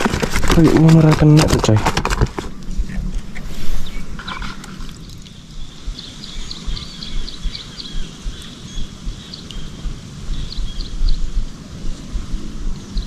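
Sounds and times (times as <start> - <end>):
wind rumble on microphone: 0.0 - 13.0
small bird chirping: 3.6 - 13.0.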